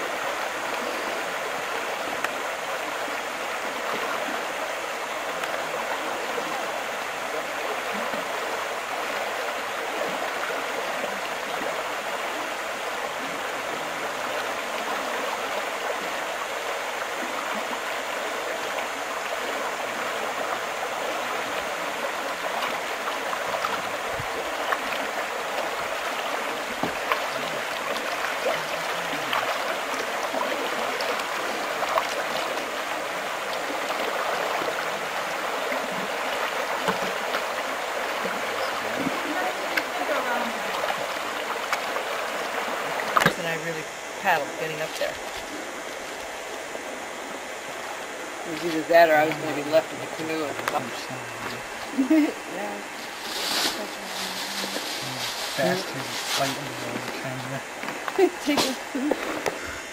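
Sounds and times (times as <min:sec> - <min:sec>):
water rushing over rapid: 0:00.0 - 0:59.9
clicks and splashes: 0:22.3 - 0:43.5, 0:52.9 - 0:59.6.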